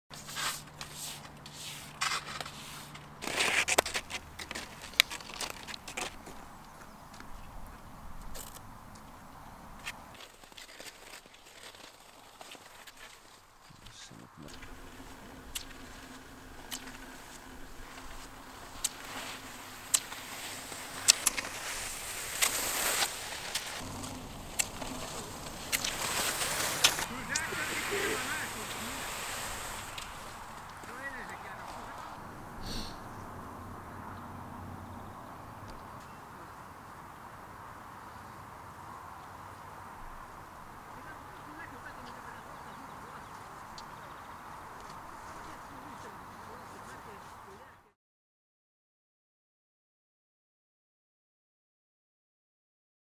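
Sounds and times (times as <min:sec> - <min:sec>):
skis shuffling on snow: 0:00.1 - 0:07.5, 0:09.8 - 0:33.0, 0:41.0 - 0:47.7
ski binding clicks: 0:14.5 - 0:27.1.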